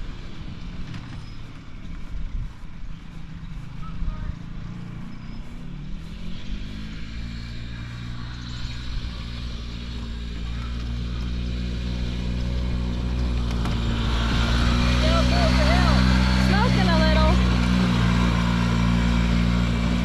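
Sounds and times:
golf cart engine revving: 0:04.3 - 0:20.0.

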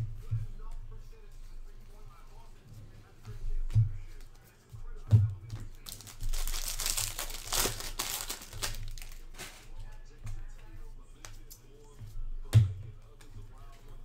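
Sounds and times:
foil wrapper crinkling and tearing: 0:05.7 - 0:09.7.

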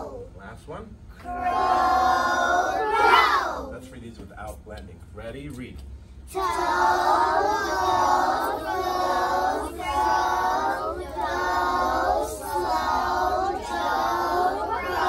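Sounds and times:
children reading aloud in unison: 0:00.0 - 0:00.4, 0:01.2 - 0:04.1, 0:06.3 - 0:15.0.

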